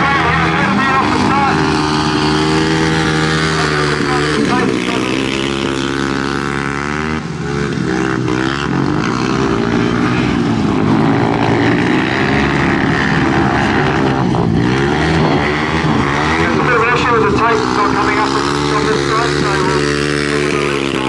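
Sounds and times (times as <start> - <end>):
motorcycle engines revving: 0.0 - 21.0.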